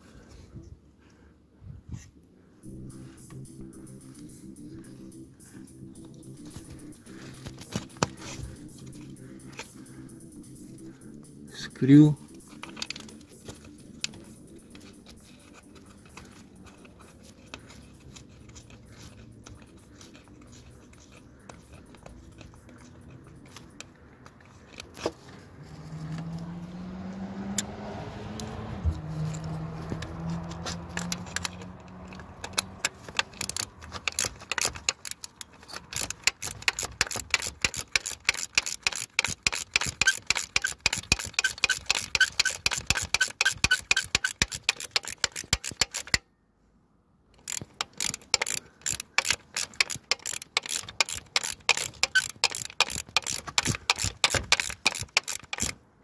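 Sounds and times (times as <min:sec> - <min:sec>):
low humming tone: 0:02.6 - 0:24.4
ratchet wrench clicking: 0:02.6 - 0:25.3, 0:28.4 - 0:46.2, 0:47.4 - 0:55.8.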